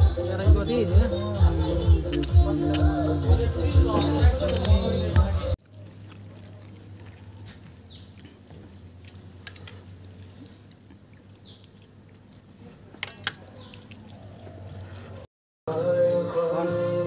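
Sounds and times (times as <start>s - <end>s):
steel tableware clinking: 4.0s - 4.8s, 13.0s - 13.4s.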